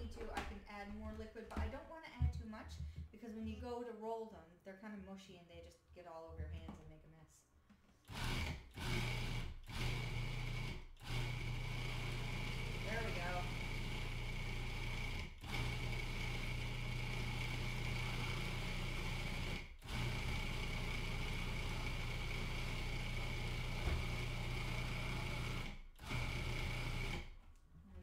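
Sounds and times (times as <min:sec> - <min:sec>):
food processor motor whining: 0:08.1 - 0:27.4.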